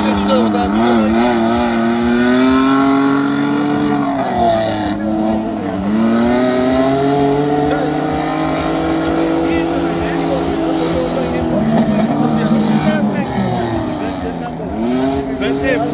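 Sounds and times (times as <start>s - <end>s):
race vehicle engine under load: 0.0s - 15.9s.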